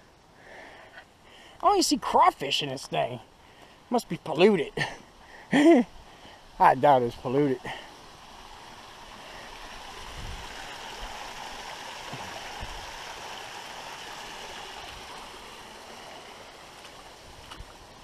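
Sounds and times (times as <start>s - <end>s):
creek water rushing: 0.0s - 18.0s.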